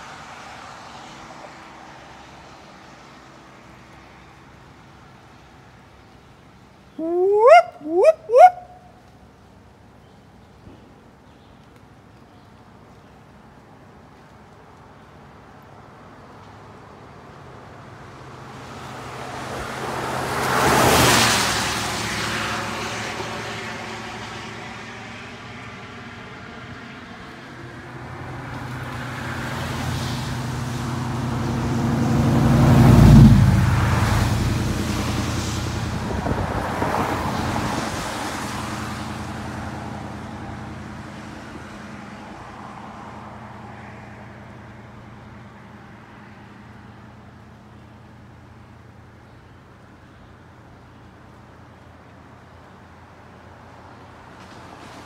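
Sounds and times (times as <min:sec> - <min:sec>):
vehicles passing: 0:00.0 - 0:55.0
low engine hum: 0:11.8 - 0:55.0.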